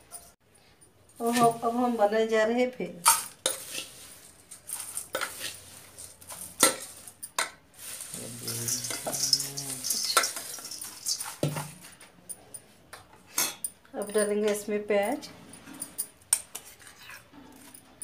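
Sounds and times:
spoon scraping steel bowls: 3.1s - 12.6s, 14.3s - 18.0s
dry flakes pouring: 3.4s - 7.2s, 7.8s - 11.5s.

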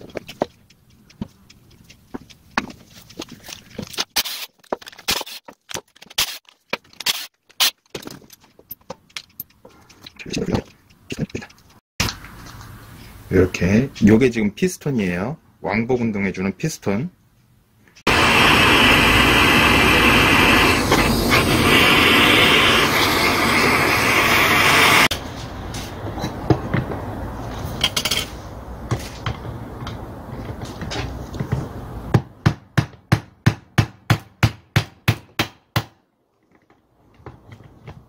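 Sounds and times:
loud steady noise: 18.1s - 25.1s.

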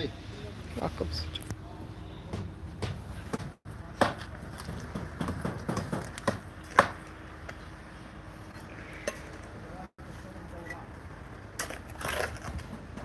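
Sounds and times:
knocks of brick and trowel: 2.4s - 7.1s.

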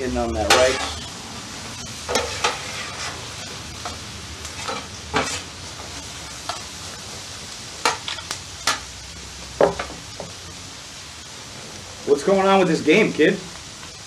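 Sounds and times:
vegetables sizzling on griddle: 0.0s - 14.0s
metal spatulas scraping steel: 0.4s - 1.1s, 2.1s - 3.2s.

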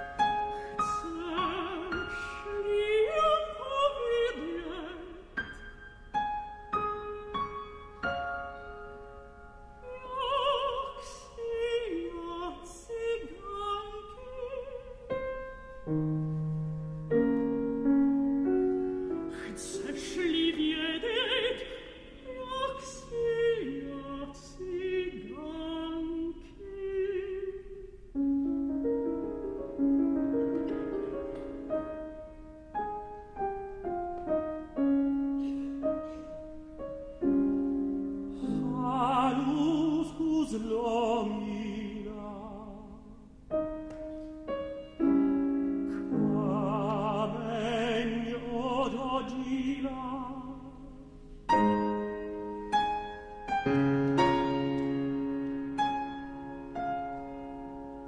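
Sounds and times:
piano: 0.0s - 58.0s
operatic tenor singing: 0.9s - 5.3s, 38.4s - 43.2s, 46.0s - 51.0s.

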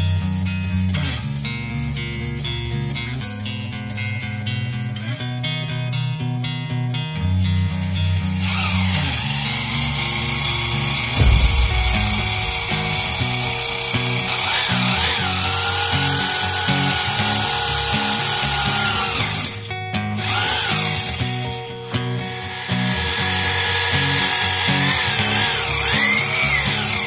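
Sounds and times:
background music: 0.0s - 27.0s
rotary hammer motor whine: 7.7s - 19.6s, 20.2s - 27.0s.

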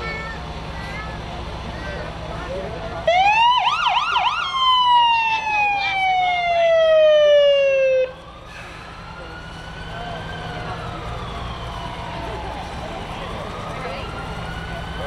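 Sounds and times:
faint siren wailing up and down: 3.0s - 15.0s
siren falling wail: 3.1s - 15.0s.

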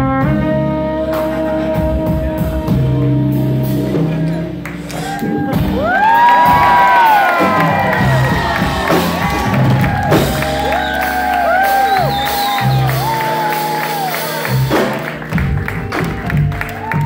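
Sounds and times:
live jazz band playing: 0.0s - 17.0s
crowd whooping and shouting: 4.9s - 14.8s, 16.6s - 17.0s.

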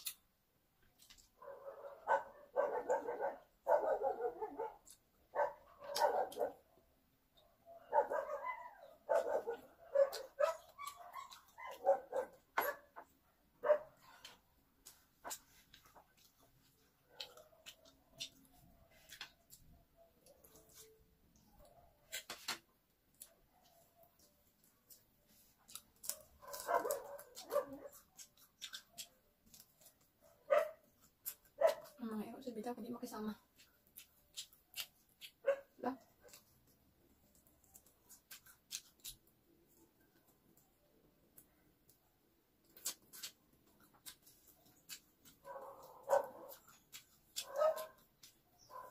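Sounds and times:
fried chicken crunching: 0.0s - 0.3s, 24.2s - 30.2s, 33.5s - 35.5s, 36.2s - 39.9s, 41.8s - 48.7s.

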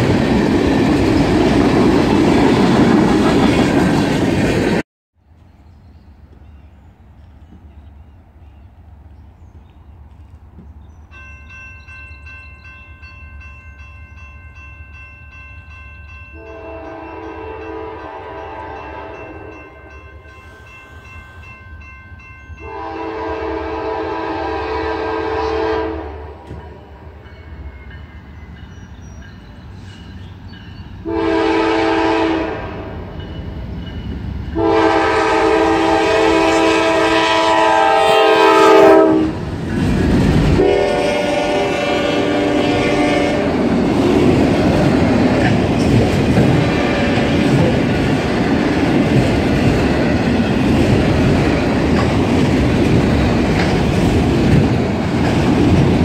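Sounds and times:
low rumble of train: 0.0s - 56.0s
locomotive air horn: 16.4s - 19.8s, 22.6s - 26.6s, 31.0s - 33.1s, 34.6s - 39.4s, 40.6s - 43.6s, 46.5s - 47.5s.

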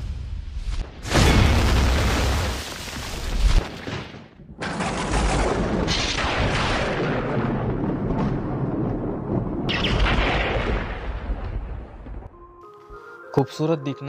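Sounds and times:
deep rumbling boom: 4.9s - 12.3s.

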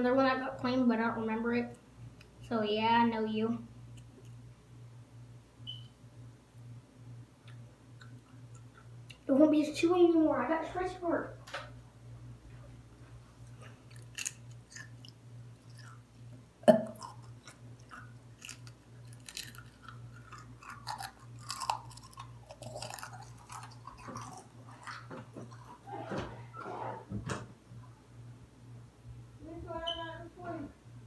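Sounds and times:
person chewing food: 7.4s - 9.2s, 13.4s - 25.9s.

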